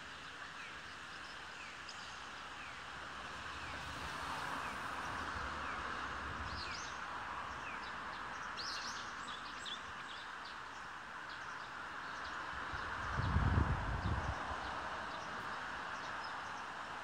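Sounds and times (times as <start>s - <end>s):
small birds chirping: 5.0s - 17.0s.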